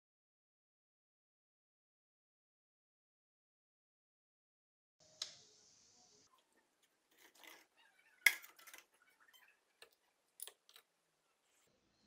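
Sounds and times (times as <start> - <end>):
faint high hiss: 5.0 - 6.6.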